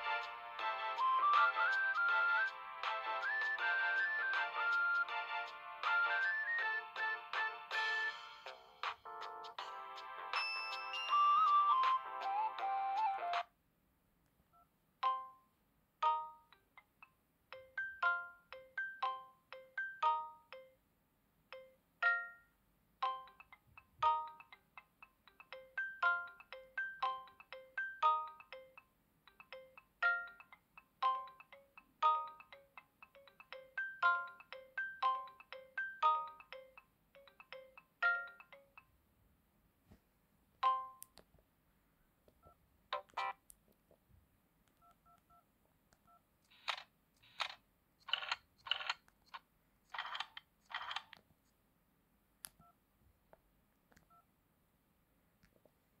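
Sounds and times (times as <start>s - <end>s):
phone ringtone melody: 0.6s - 13.5s, 17.5s - 20.8s, 21.6s - 24.6s, 25.4s - 38.8s.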